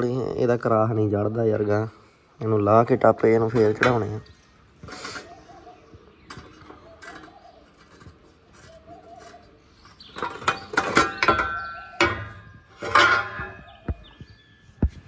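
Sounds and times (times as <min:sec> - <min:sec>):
sheet metal clanking and rattling: 0:09.2 - 0:14.2.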